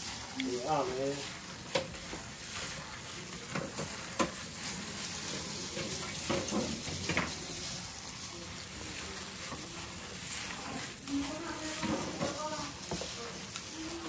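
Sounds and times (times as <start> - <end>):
hand squishing raw minced meat: 6.8 - 11.4, 12.6 - 14.0.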